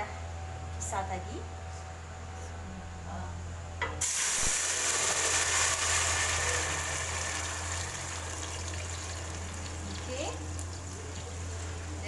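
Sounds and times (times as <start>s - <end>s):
paste sizzling in hot oil: 4.0s - 9.8s.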